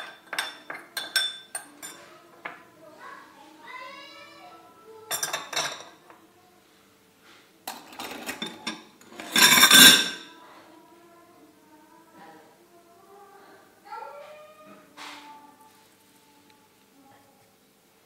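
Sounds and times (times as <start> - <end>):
metal sieve clattering against glass bowl: 7.7 - 10.3.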